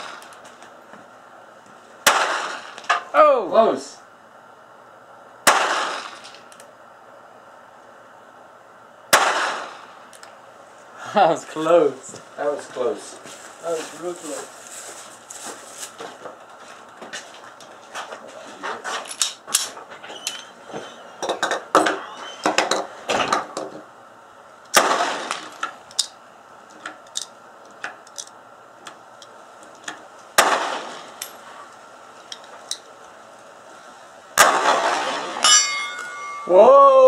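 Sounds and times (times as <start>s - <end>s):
pistol shots: 2.0s - 2.9s, 5.4s - 6.4s, 9.1s - 10.0s, 24.7s - 25.6s, 30.4s - 31.2s, 34.4s - 35.5s.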